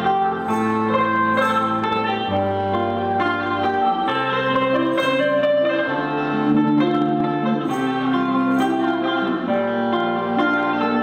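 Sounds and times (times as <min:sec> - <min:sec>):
acoustic guitar: 0:00.0 - 0:11.0
plucked lute melody: 0:00.0 - 0:11.0.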